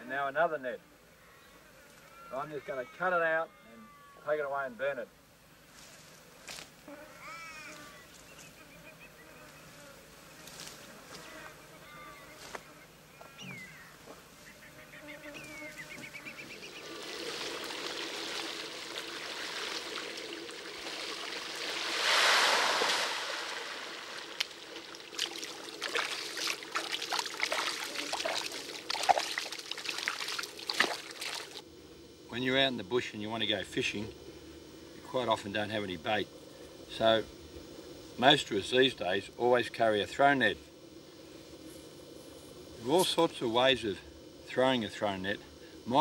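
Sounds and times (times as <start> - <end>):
birds calling: 13.0 - 17.6
small splashes and drips: 16.9 - 31.6
splash of net in water: 20.8 - 31.6.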